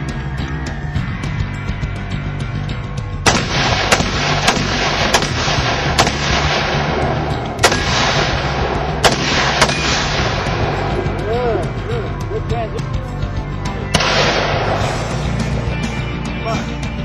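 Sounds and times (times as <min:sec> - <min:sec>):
background music: 0:00.0 - 0:17.0
rifle gunshots: 0:03.2 - 0:11.1, 0:13.9 - 0:15.2.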